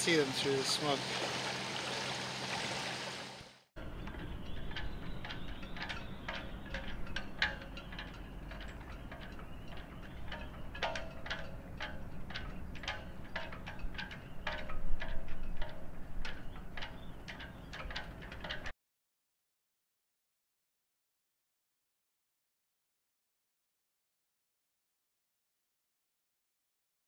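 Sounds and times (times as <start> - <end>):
water rushing: 0.0 - 3.7
light clinks and taps: 4.0 - 18.7.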